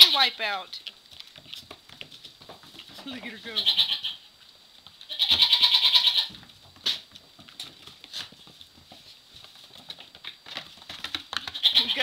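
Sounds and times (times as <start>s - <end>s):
small hooves tapping on floor: 0.0s - 12.0s
goat kid bleating: 3.3s - 4.3s, 5.0s - 6.4s, 11.5s - 12.0s.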